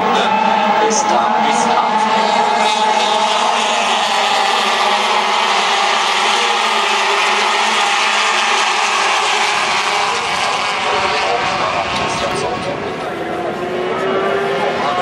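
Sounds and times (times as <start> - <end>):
racing motorcycles passing at high revs: 0.9 - 15.0.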